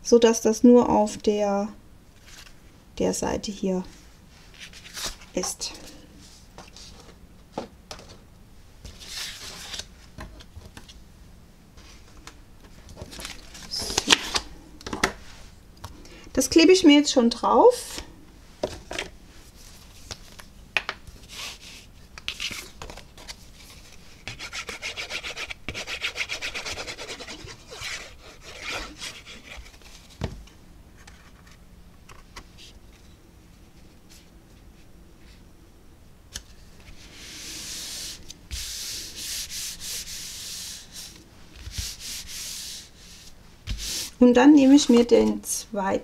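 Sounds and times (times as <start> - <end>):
paper rustling: 12.8 - 14.5
palms rubbing card: 21.2 - 30.2, 36.8 - 44.2.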